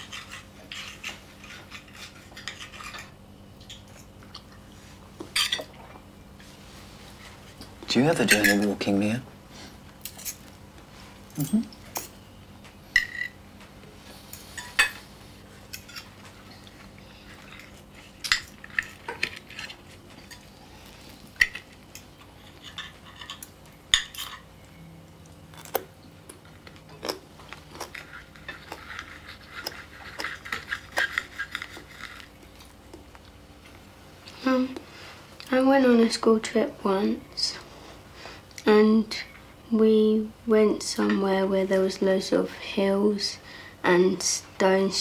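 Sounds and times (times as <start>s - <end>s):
cutlery scraping across plate: 0.0s - 3.2s, 10.0s - 10.5s, 15.7s - 16.7s, 21.4s - 24.5s, 27.9s - 32.3s.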